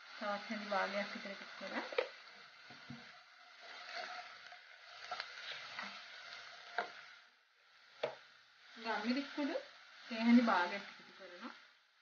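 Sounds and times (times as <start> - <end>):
onions and spices frying: 0.0 - 12.0
wooden spatula knocking pan: 6.7 - 7.0, 8.0 - 8.2.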